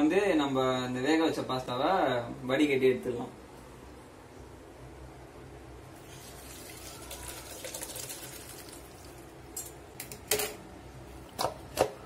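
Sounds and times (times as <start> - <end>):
water pouring into a colander: 6.0 - 9.3.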